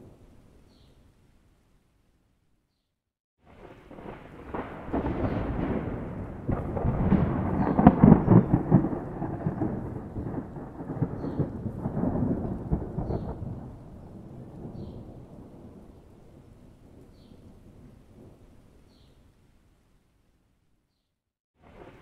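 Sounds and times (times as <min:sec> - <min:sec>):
thunder rumbling: 0:03.4 - 0:18.6, 0:21.6 - 0:22.0.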